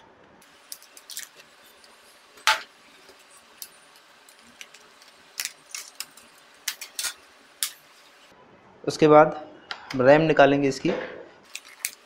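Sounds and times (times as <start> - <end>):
laptop parts clicking and clattering: 0.7 - 7.8.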